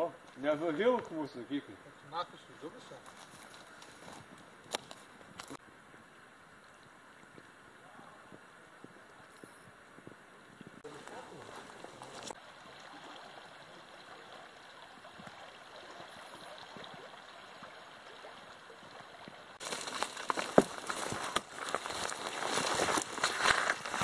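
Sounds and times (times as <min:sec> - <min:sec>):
branches brushing: 0:02.6 - 0:05.6, 0:10.8 - 0:12.4, 0:19.6 - 0:24.0
dry twigs crackling and snapping: 0:03.0 - 0:05.6, 0:11.0 - 0:12.4, 0:19.6 - 0:24.0
river water flowing: 0:10.8 - 0:24.0
footsteps on leaf litter: 0:10.9 - 0:12.4, 0:19.6 - 0:24.0.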